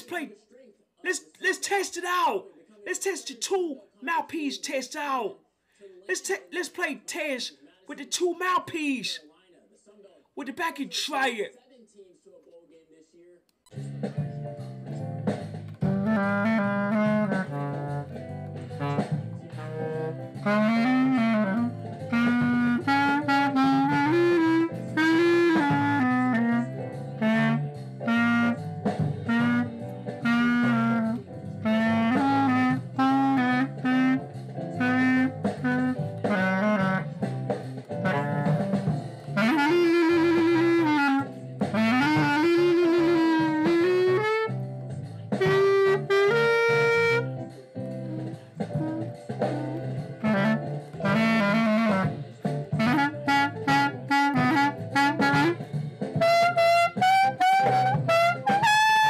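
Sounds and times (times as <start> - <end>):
clarinet melody: 15.7 - 59.0.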